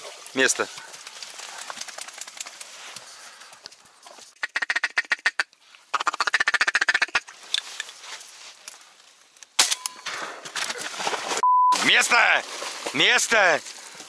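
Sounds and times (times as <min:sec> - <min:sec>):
ducks quacking: 0:04.4 - 0:05.4.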